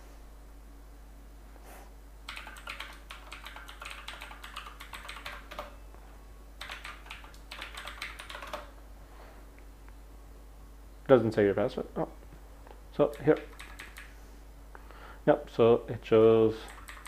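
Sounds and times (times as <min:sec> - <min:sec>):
typing on computer keyboard: 0:02.3 - 0:05.8, 0:06.6 - 0:08.7, 0:13.1 - 0:14.1, 0:16.6 - 0:17.0.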